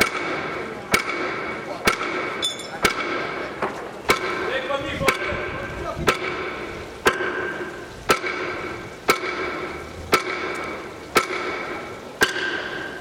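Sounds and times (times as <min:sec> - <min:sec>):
hammer striking metal cover: 0:06.1 - 0:13.0.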